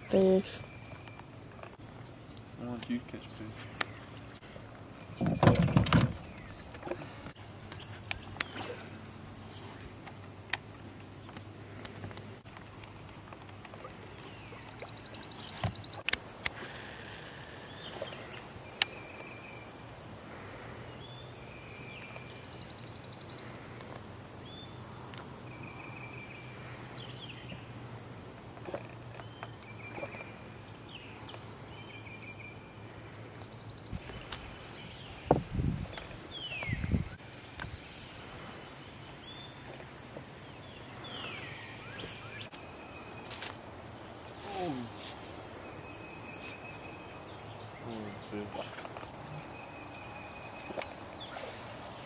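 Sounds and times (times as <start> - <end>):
high-pitched insect drone: 15.2 - 21.7.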